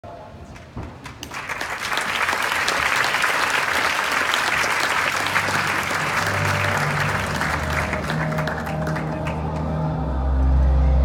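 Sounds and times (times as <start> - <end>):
audience applauding: 0.5 - 10.1
low sustained music notes: 4.8 - 11.0.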